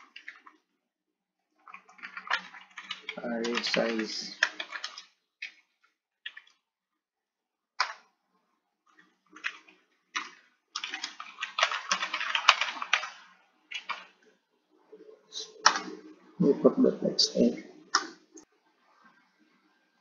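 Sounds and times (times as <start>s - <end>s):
computer keyboard typing: 0.0s - 0.6s, 1.6s - 6.6s, 7.8s - 8.1s, 8.9s - 14.2s, 15.5s - 16.0s.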